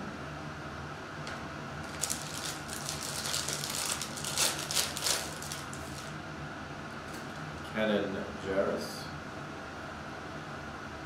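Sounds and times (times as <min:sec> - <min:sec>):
foil wrapper crinkling: 0:01.8 - 0:06.1.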